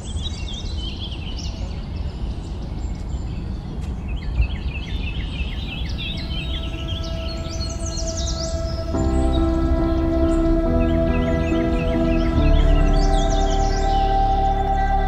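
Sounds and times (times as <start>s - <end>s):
small birds chirping: 4.2s - 15.0s
soft sustained music tones: 5.5s - 15.0s
steady low rumble: 5.8s - 15.0s.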